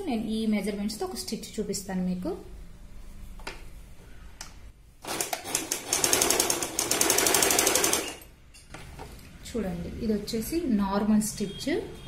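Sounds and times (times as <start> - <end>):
sewing machine clatter: 5.0 - 8.3.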